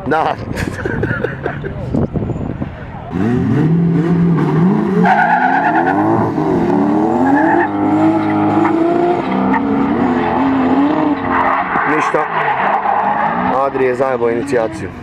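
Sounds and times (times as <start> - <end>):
car engines revving: 0.0 - 15.0
tyres squealing: 5.0 - 6.2.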